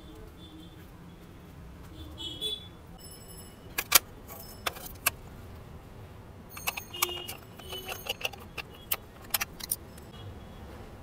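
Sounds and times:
high metallic rings: 6.5s - 8.9s.

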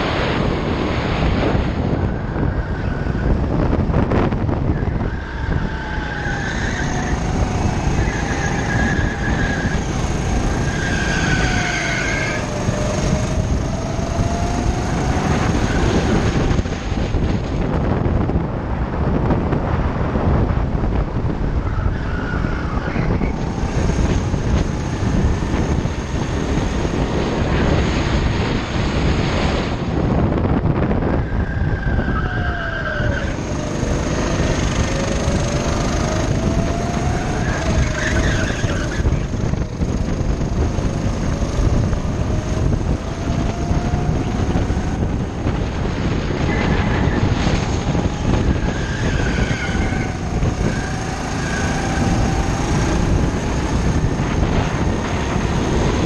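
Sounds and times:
go-kart engine running: 0.0s - 19.1s, 20.5s - 30.1s, 32.7s - 56.0s
wind noise: 0.0s - 56.0s.

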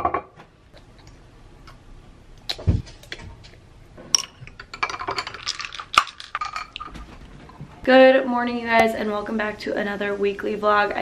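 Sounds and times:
glass bottles clinking: 4.1s - 7.0s
water stirred in glass bottle: 4.1s - 7.0s.

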